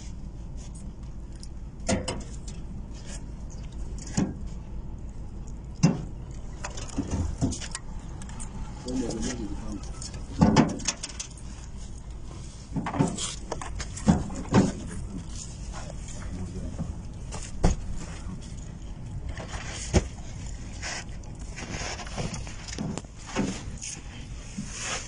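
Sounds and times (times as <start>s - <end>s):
low hum: 0.0s - 25.0s.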